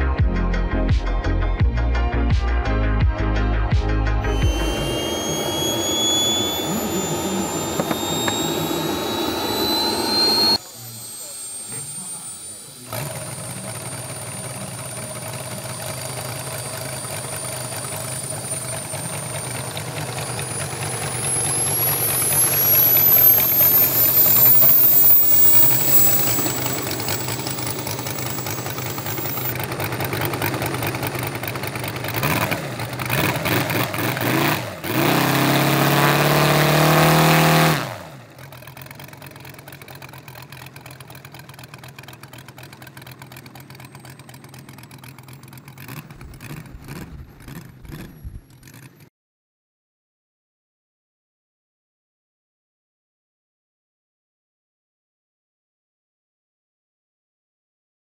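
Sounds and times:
model airplane engine revving: 0:04.2 - 0:49.1.

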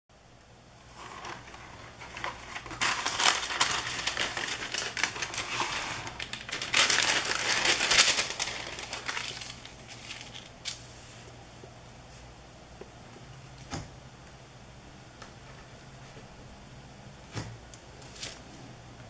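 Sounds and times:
wax paper crinkling: 0:00.9 - 0:11.0.

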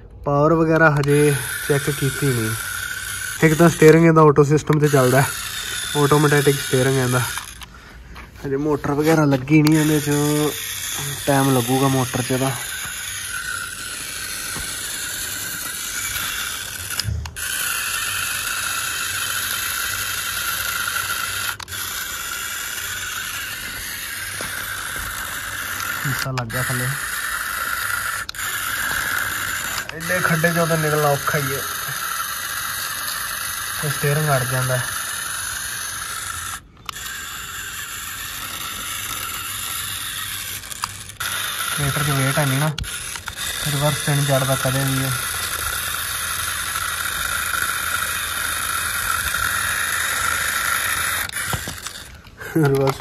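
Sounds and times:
toy tractor motor whirring: 0:00.0 - 0:53.0
wheels digging through dirt: 0:41.1 - 0:45.2.

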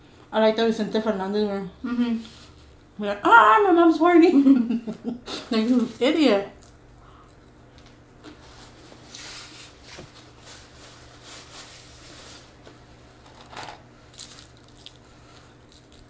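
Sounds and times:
faint steady hum: 0:00.0 - 0:16.0
paper wrappers rustling: 0:05.5 - 0:06.4
chewing: 0:14.2 - 0:16.0.

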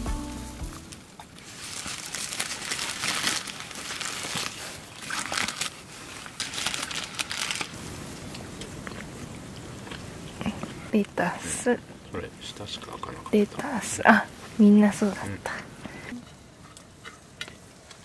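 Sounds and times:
food wrapper crinkling and tearing: 0:00.8 - 0:09.1.

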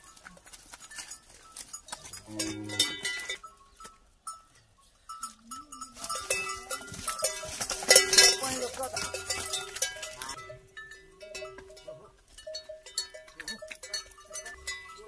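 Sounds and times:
bell clinking: 0:00.9 - 0:15.0
buffalo calf calling: 0:02.0 - 0:03.8.

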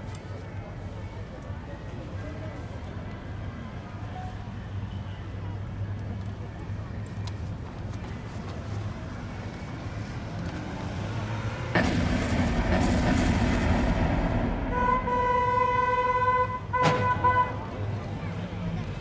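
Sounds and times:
cars driving on pavement: 0:00.0 - 0:19.0
sharp bang: 0:11.8 - 0:17.4
car horn sounding steadily: 0:14.7 - 0:18.0.

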